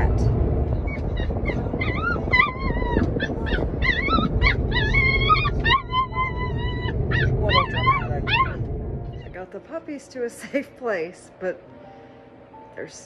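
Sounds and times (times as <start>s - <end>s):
car rumble: 0.0s - 9.6s
puppies whining and yelping: 0.7s - 9.3s.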